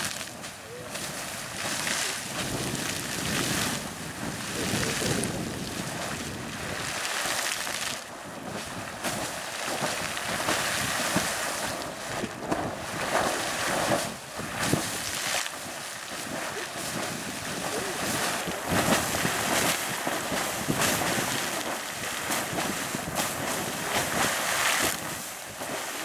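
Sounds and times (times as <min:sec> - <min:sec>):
geyser water splashing: 0:00.0 - 0:26.0.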